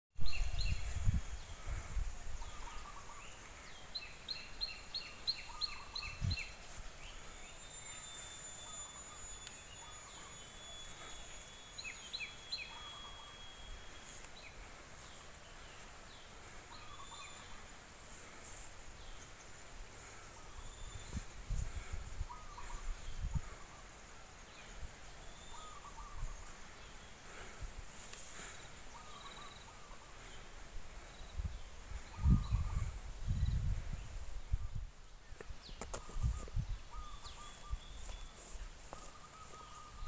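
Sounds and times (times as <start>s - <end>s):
birds chirping: 0.2s - 40.0s
high insect buzz: 6.4s - 21.9s.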